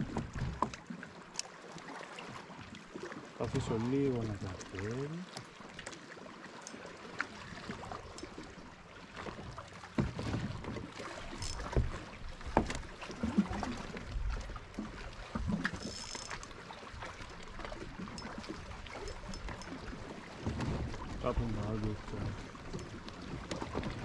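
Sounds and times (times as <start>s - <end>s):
water lapping against hull: 0.0s - 24.0s
gear clicks and knocks: 11.3s - 12.9s, 15.4s - 16.6s.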